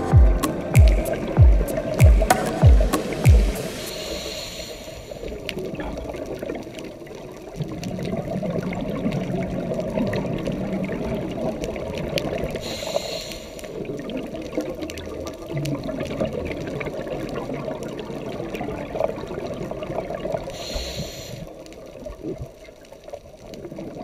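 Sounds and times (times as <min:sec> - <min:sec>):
short hiss: 0:01.9 - 0:05.4, 0:12.6 - 0:13.8, 0:20.6 - 0:21.5
bubbles gurgling underwater: 0:05.3 - 0:12.8, 0:13.8 - 0:20.6.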